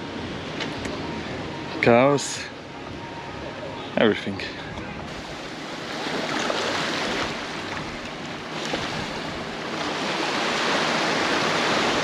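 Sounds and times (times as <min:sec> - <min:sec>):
gentle surf washing over sand: 0:05.1 - 0:12.0.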